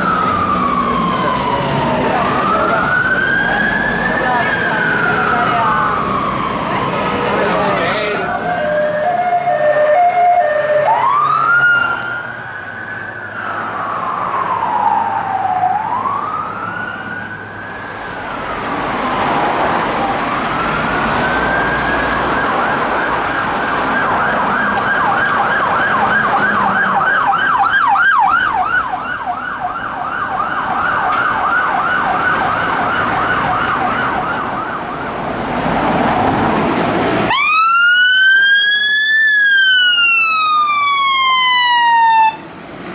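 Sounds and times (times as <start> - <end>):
police siren yelping: 0.0 - 18.4, 19.1 - 36.4, 37.3 - 42.4
police siren wailing: 0.0 - 42.5.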